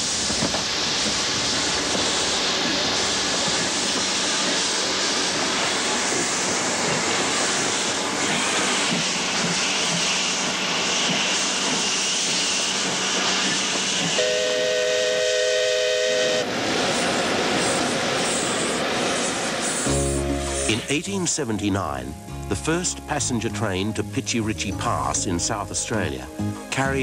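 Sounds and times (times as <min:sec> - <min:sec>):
steam locomotive hissing: 0:00.0 - 0:21.7
steam whistle chord: 0:14.2 - 0:16.5, 0:19.8 - 0:21.0.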